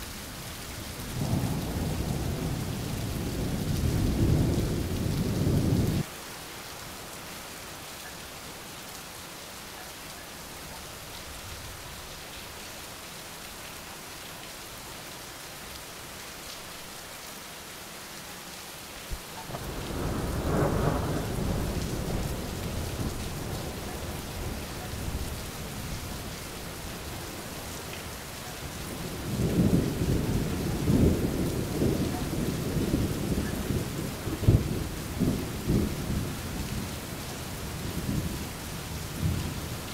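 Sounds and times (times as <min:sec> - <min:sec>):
steady rain: 0:00.0 - 0:39.9
rolling thunder: 0:01.0 - 0:06.0, 0:19.5 - 0:27.3, 0:28.7 - 0:37.0.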